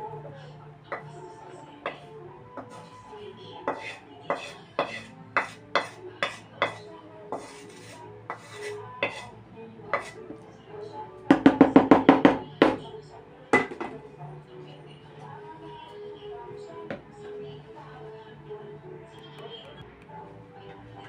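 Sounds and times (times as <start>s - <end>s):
wooden spatula knocking on a wok: 11.3s - 12.8s.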